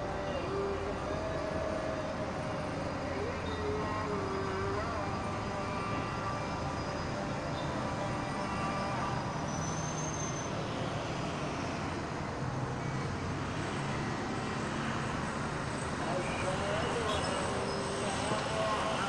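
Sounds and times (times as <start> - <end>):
distant traffic hum: 0.0 - 19.0
faint high whistle: 3.3 - 10.6.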